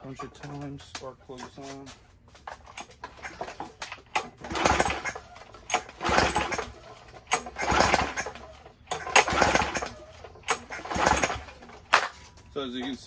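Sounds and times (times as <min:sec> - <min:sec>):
engine pull-start cranking: 0:02.5 - 0:12.2.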